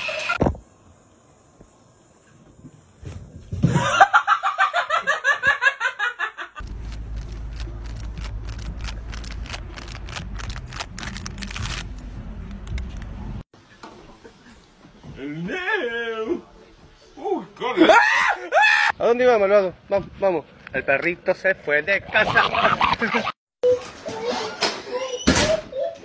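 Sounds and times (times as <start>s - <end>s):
person laughing hard: 22.1s - 23.4s.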